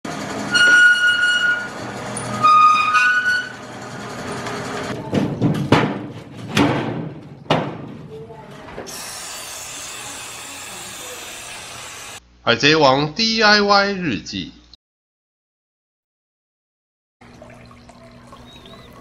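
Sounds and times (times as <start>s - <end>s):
roller shutter squealing: 0.1s - 5.0s.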